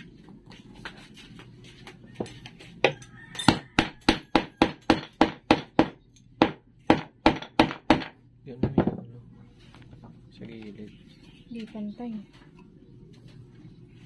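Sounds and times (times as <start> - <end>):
hammer striking wood: 2.8 - 9.0.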